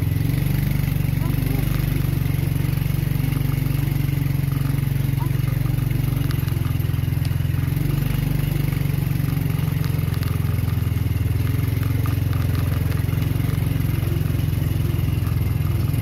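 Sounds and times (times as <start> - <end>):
small motorcycle engine running: 0.0 - 16.0
stones clicking and rattling: 5.7 - 16.0.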